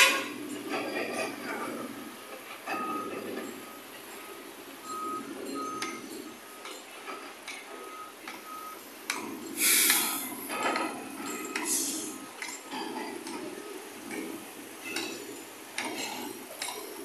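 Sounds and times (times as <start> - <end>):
short steady beeps: 2.7 - 6.8, 7.8 - 8.8
rushing hiss: 9.6 - 10.3.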